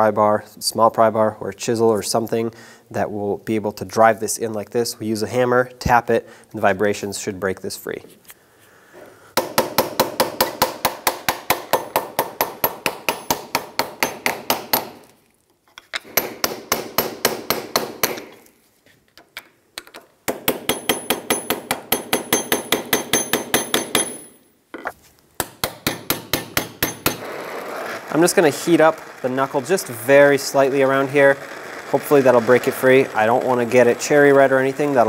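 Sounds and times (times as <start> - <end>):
hammer tapping metal pry bar: 9.4 - 15.1, 15.8 - 18.4, 19.8 - 24.3, 25.4 - 27.2.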